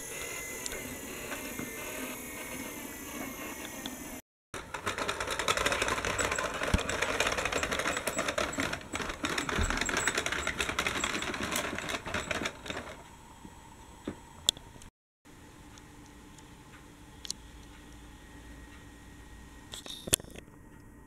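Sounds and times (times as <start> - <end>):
toy tram wheels clicking on track: 0.1 - 13.0.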